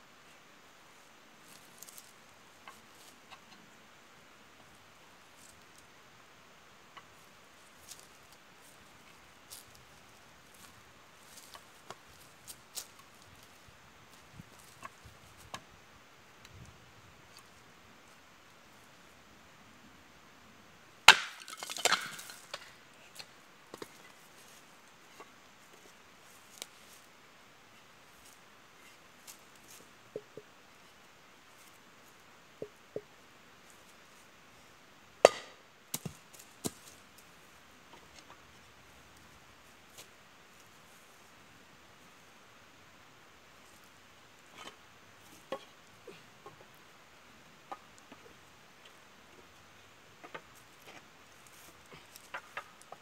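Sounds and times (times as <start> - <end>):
faint steady hiss: 0.0 - 53.0
sharp wooden crack: 21.1 - 22.7, 35.2 - 36.8
wood splintering and clattering: 21.1 - 22.7.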